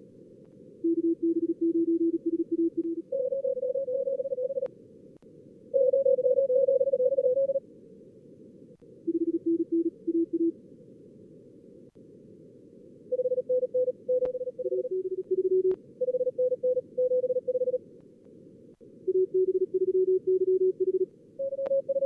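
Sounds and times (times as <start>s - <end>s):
morse code tones: 13.2s - 17.8s.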